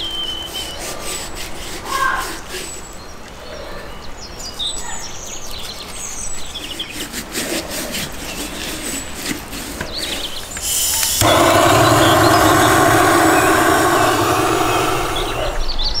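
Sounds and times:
birds chirping: 10.0 - 16.0
gas torch hissing: 10.6 - 15.7.

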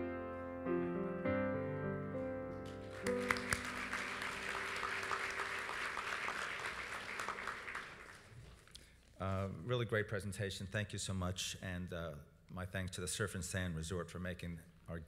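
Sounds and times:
background music with held chords: 0.0 - 4.4
audience applauding: 2.6 - 8.7.

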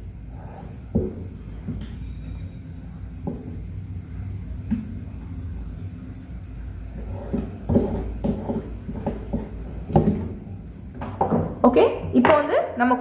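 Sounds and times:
marker scraping on fabric: 7.0 - 9.6.

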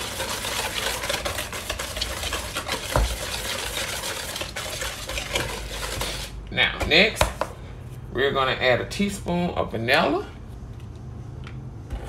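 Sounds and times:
whisk beating batter in bowl: 0.0 - 6.4.

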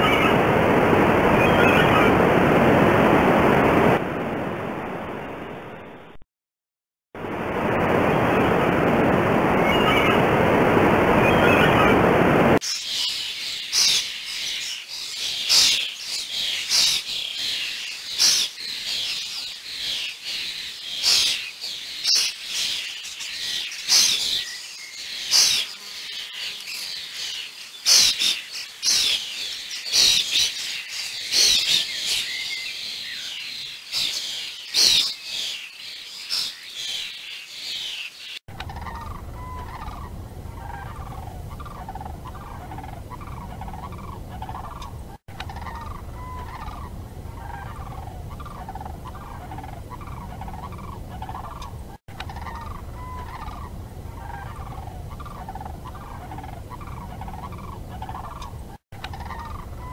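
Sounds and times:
bird chirping: 12.6 - 59.9.

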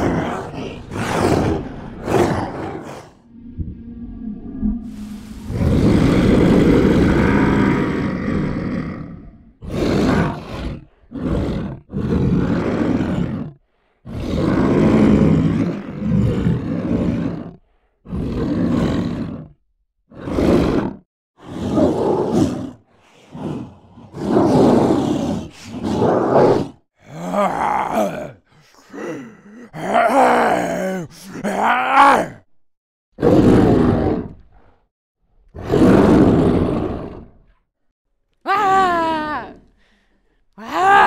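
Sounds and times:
monster roars and growls: 0.0 - 32.5, 33.2 - 34.9, 35.6 - 37.6, 40.6 - 41.0.

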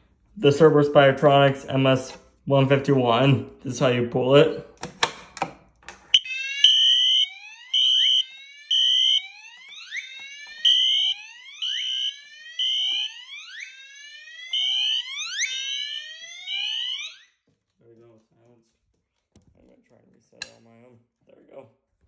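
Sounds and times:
alarm horn beeping: 6.2 - 13.9
whooping alarm sweeps: 6.2 - 17.4.

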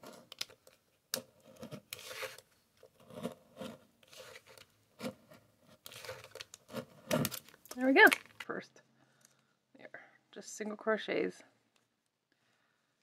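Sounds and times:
knife cutting plastic lid: 1.1 - 7.5.

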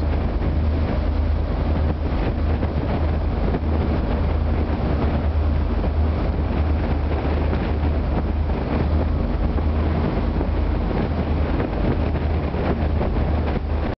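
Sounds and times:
boat engines droning: 0.0 - 13.9
rough sea wash: 0.0 - 14.0
wind buffeting microphone: 0.0 - 14.0.

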